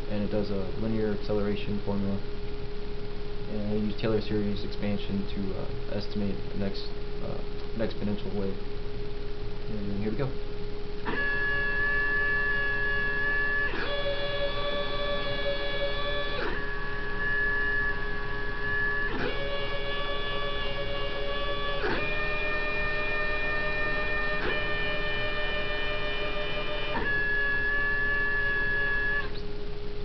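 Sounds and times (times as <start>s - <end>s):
stepper motors whining: 11.0s - 29.5s.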